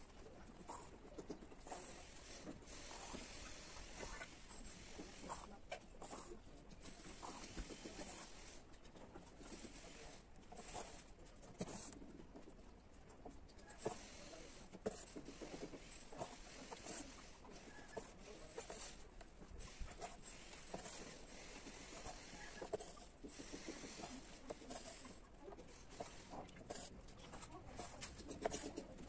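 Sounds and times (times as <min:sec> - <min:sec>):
needle drawn through cloth: 0:13.6 - 0:29.0.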